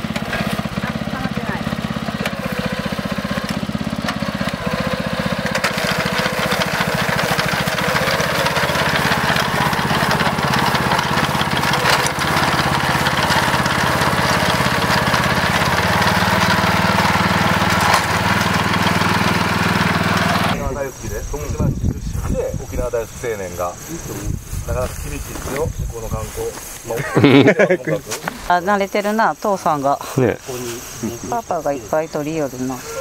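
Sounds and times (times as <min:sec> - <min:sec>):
small engine running: 0:00.0 - 0:33.0.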